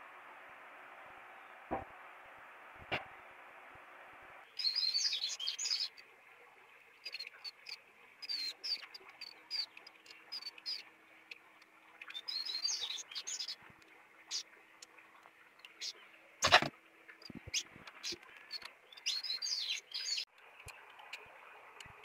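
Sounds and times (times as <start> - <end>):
bird chirping: 4.4 - 6.1, 7.0 - 11.4, 12.0 - 13.6, 14.3 - 14.5, 15.6 - 21.2.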